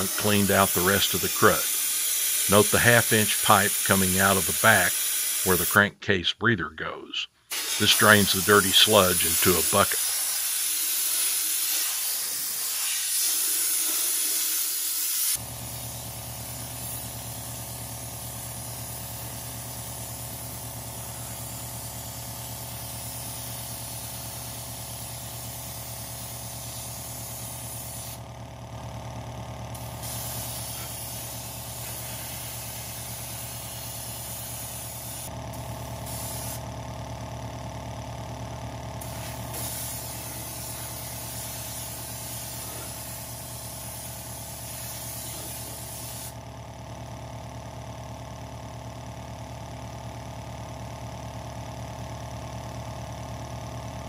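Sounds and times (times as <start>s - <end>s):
spray gun hissing: 0.0s - 5.8s, 7.5s - 28.2s, 29.8s - 35.3s, 36.0s - 36.6s, 39.0s - 46.4s.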